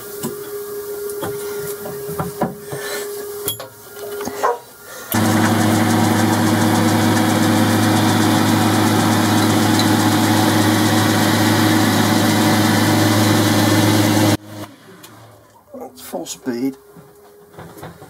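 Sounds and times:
lathe belt drive running: 5.1s - 14.7s.

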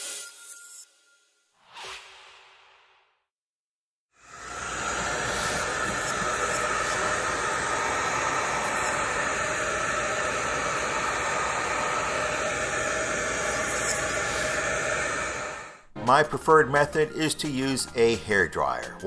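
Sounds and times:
hair dryer blowing: 4.2s - 15.8s.

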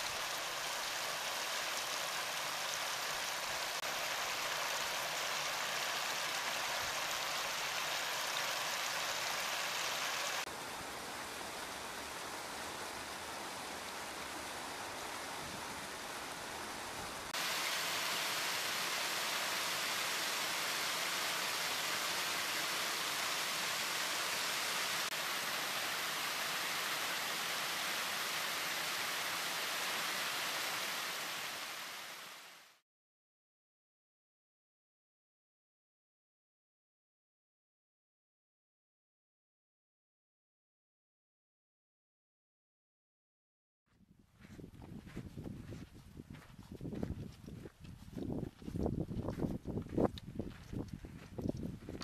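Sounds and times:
stream rushing over rocks: 0.0s - 32.7s.

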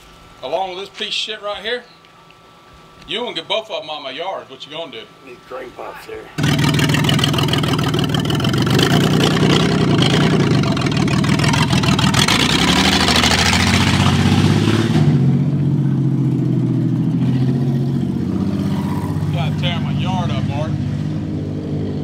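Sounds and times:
van engine revving: 6.4s - 22.0s.

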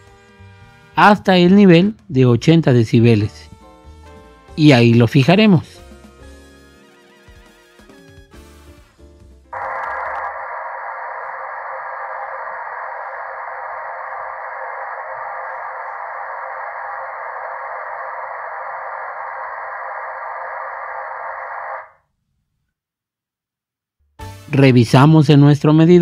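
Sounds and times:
speaker test noise hiss: 4.6s - 5.8s, 9.6s - 22.0s.

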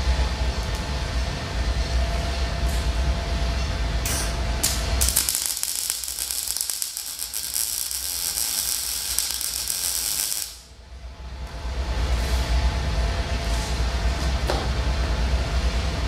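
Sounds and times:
welder arc crackling: 4.6s - 10.7s.

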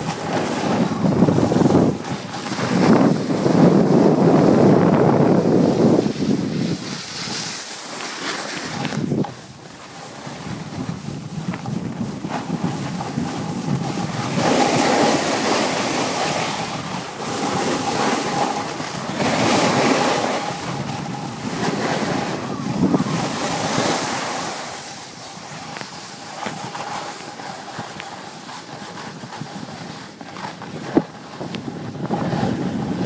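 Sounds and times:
skis scraping over hard snow: 0.0s - 33.0s
wind noise on microphone: 0.0s - 33.0s.

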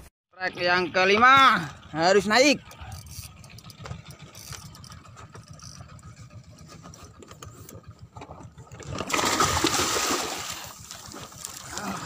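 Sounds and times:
boat engine idling: 0.6s - 12.0s
fish splashing water: 8.6s - 12.0s.

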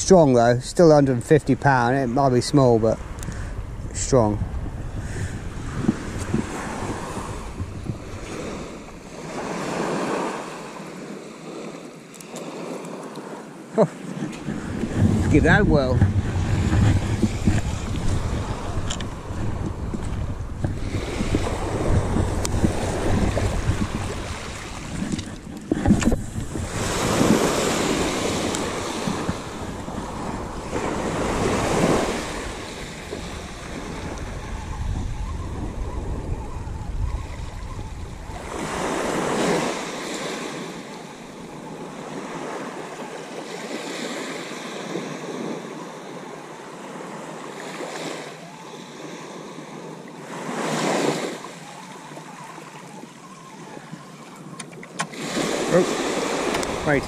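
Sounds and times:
wind buffeting microphone: 0.0s - 10.4s, 14.0s - 42.6s, 53.0s - 57.0s
waves washing on pebbles: 8.2s - 34.0s, 55.1s - 57.0s.

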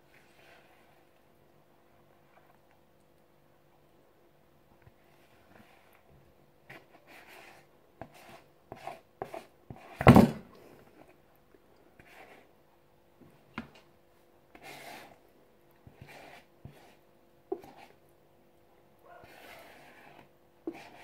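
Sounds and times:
spatula scraping plastic bowl: 14.5s - 15.2s, 15.8s - 18.0s, 19.2s - 21.0s.

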